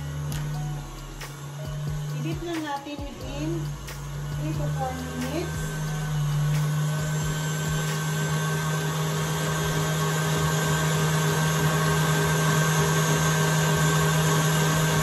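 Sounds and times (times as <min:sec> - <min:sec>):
stand mixer motor whining: 0:00.0 - 0:15.0.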